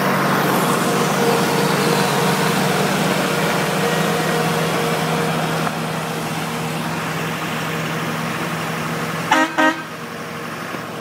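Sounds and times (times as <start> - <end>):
diesel engine running: 0.0 - 11.0
horn toots: 9.3 - 9.9.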